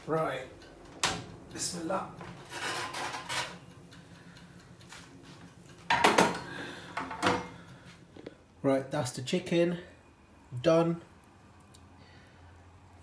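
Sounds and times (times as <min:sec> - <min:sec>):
oven door opening: 0:00.8 - 0:03.7
metal tray clattering on hob: 0:05.9 - 0:06.4.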